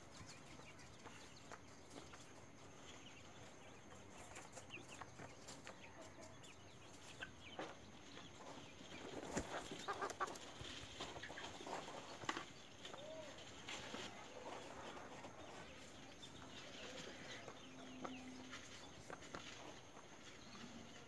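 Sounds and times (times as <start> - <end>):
chickens clucking: 0.0 - 21.0.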